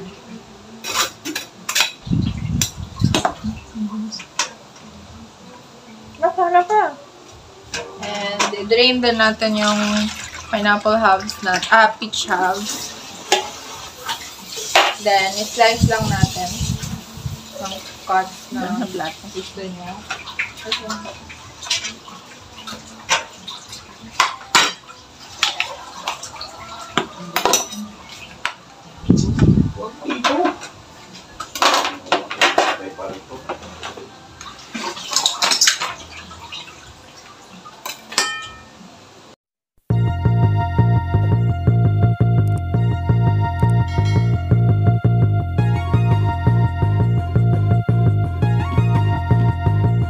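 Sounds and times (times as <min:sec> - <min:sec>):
metal utensils clinking against bowls: 0:00.8 - 0:02.0, 0:07.8 - 0:16.7, 0:17.4 - 0:28.7, 0:30.1 - 0:36.3, 0:37.8 - 0:38.8
metal spoon clinking in bowl: 0:37.9 - 0:38.8.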